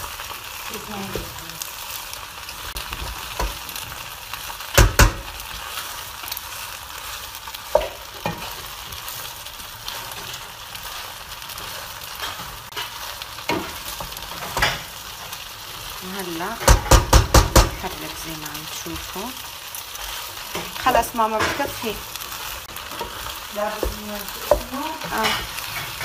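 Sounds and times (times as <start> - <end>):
food sizzling in a pan: 0.0 - 26.0
wooden spoon knocking pan: 7.7 - 8.6, 16.6 - 17.8, 23.0 - 25.4.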